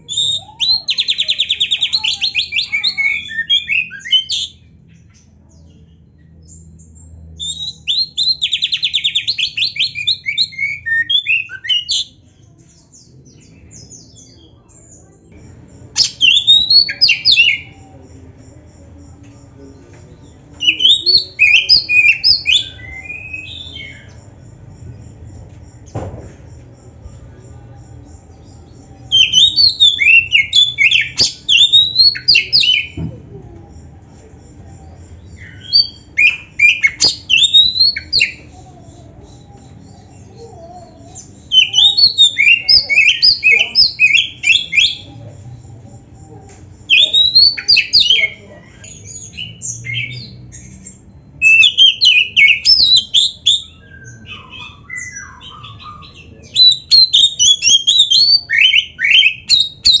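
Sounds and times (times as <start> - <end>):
bird singing whistles and chirps: 16.0 - 17.8, 20.6 - 24.2, 28.8 - 33.0, 35.2 - 40.4, 41.2 - 45.1, 46.9 - 60.0.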